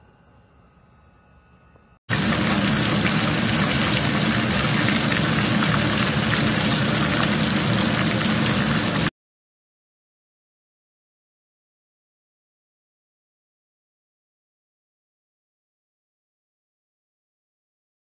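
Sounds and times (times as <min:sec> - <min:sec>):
oil sizzling and crackling: 0:02.1 - 0:09.1.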